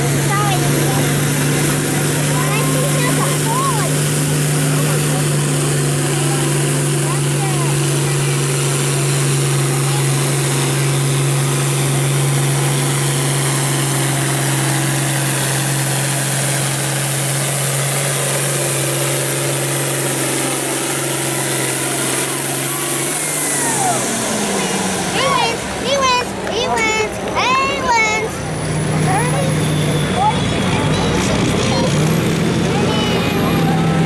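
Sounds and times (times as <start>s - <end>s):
tractor diesel engine running hard: 0.0s - 34.0s.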